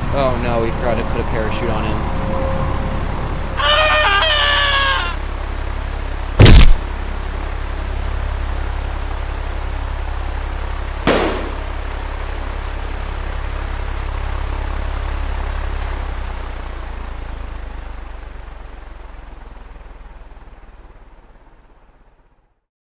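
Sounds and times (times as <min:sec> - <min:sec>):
airplane in flight rumbling: 0:00.0 - 0:22.6
loud sharp bang: 0:06.4 - 0:06.8, 0:11.1 - 0:11.8.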